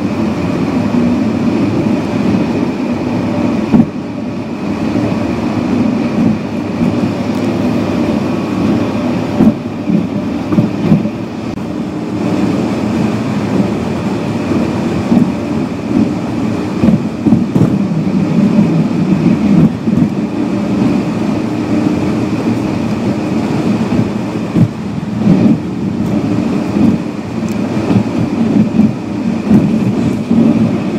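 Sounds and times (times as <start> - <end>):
car tyres and engine rumbling: 0.0 - 30.9
thumps from road bumps: 9.3 - 11.2, 16.8 - 18.0, 23.9 - 26.2.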